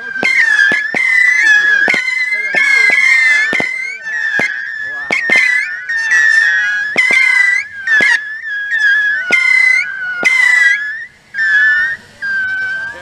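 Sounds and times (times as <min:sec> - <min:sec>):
shrill firework whistles: 0:00.0 - 0:13.0
sharp firework pops: 0:00.1 - 0:08.3.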